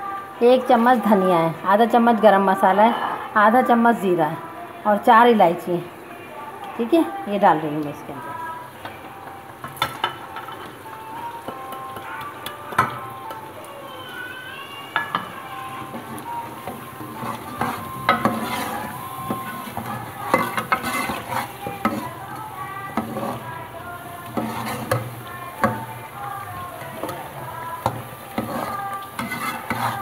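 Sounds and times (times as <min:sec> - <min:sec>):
meat sizzling: 0:06.0 - 0:30.0
metal ladle scraping pot: 0:15.0 - 0:23.6, 0:24.2 - 0:30.0.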